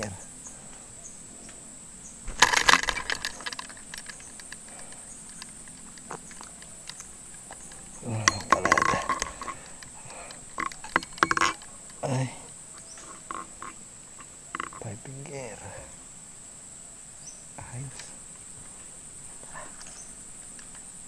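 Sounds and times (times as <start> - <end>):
sharp clicks and knocks: 2.3 - 12.0, 12.9 - 14.9.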